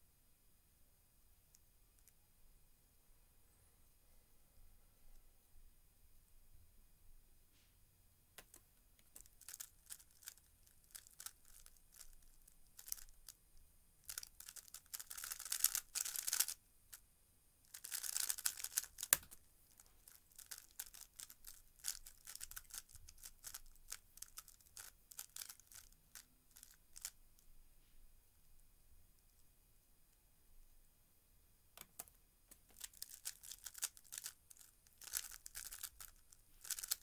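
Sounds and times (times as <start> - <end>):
puzzle cube turning clicks: 14.1 - 16.6, 31.8 - 37.0.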